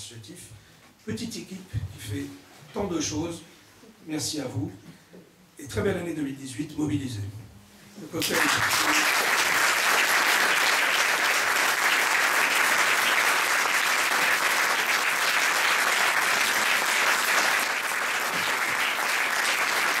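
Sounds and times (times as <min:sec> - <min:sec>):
audience applauding: 0:08.2 - 0:20.0.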